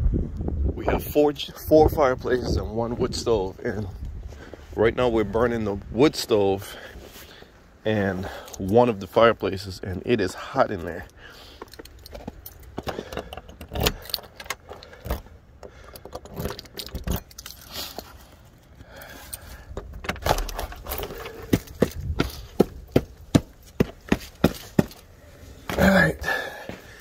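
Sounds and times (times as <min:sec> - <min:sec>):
keys jangling: 0:11.0 - 0:18.3.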